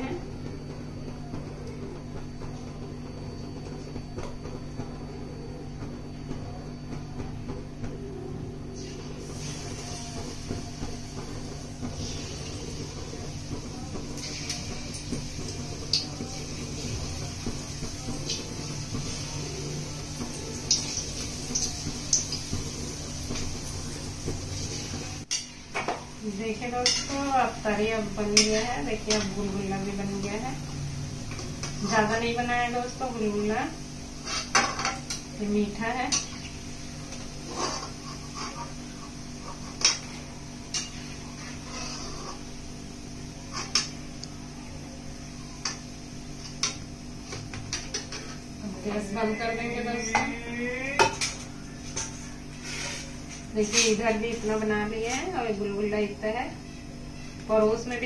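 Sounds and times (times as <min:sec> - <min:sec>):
fritters sizzling in hot oil: 0:08.8 - 0:44.2
metal utensils clinking on pan: 0:26.8 - 0:27.2.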